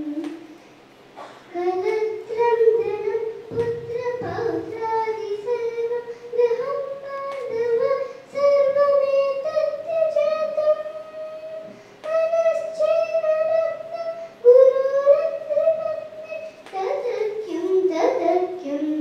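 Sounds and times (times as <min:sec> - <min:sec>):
girl singing into a microphone: 0:00.0 - 0:00.6, 0:01.2 - 0:19.0
singer breathing: 0:06.0 - 0:06.4, 0:08.0 - 0:08.4, 0:11.7 - 0:12.1.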